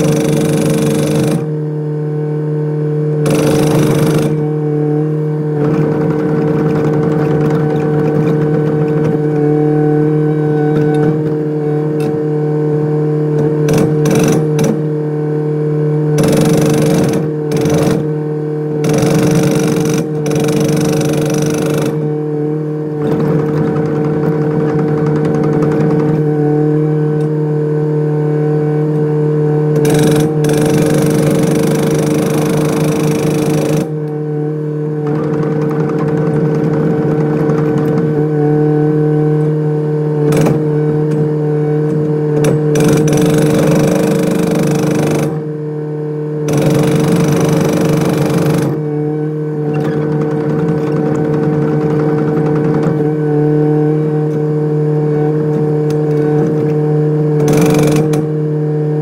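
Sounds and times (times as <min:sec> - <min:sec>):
hydraulic breaker hammering: 0:00.0 - 0:01.6, 0:03.2 - 0:04.6, 0:05.6 - 0:09.6, 0:13.4 - 0:14.9, 0:16.1 - 0:22.2, 0:23.0 - 0:26.3, 0:29.7 - 0:34.2, 0:35.0 - 0:38.2, 0:40.2 - 0:45.5, 0:46.4 - 0:49.0, 0:49.6 - 0:53.2, 0:57.4 - 0:58.4
diesel engine running: 0:00.0 - 0:58.2.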